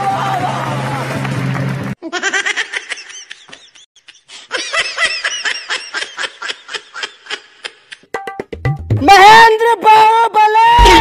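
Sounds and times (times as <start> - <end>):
music: 0.0 - 2.0, 8.0 - 11.0
people laughing: 2.0 - 8.0.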